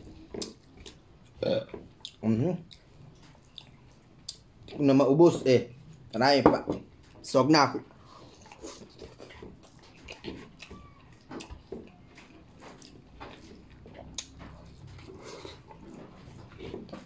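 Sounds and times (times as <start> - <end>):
person chewing: 0.0 - 4.8, 7.9 - 17.0
lip smacking: 2.0 - 4.8, 8.0 - 17.0.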